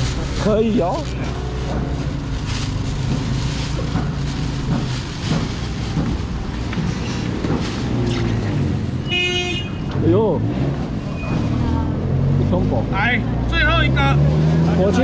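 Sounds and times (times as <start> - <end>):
street market clatter: 0.0 - 15.0.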